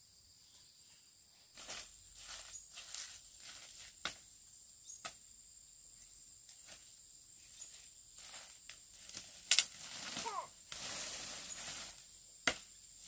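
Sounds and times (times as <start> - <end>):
insects calling: 0.0 - 13.0.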